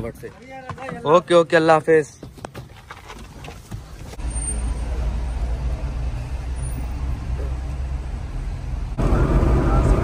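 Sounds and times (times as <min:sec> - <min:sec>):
car road and engine rumble: 0:02.2 - 0:10.0.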